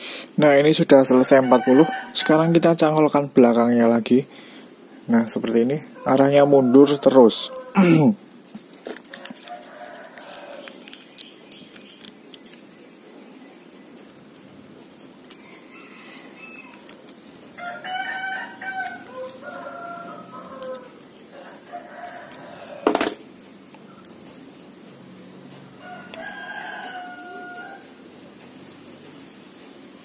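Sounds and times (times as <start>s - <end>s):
rooster crowing: 1.2s - 2.9s, 6.0s - 7.8s, 9.2s - 10.8s, 15.3s - 17.0s, 17.6s - 23.2s, 25.5s - 28.0s.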